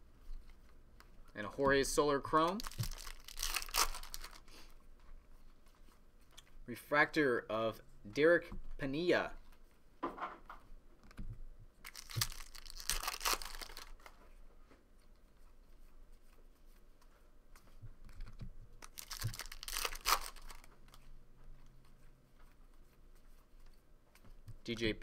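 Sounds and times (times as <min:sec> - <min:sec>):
cards rustling: 0:00.2 - 0:06.6, 0:11.8 - 0:14.4, 0:17.6 - 0:21.1
foil pack tearing and crinkling: 0:02.4 - 0:04.4, 0:11.9 - 0:14.1, 0:18.8 - 0:20.7.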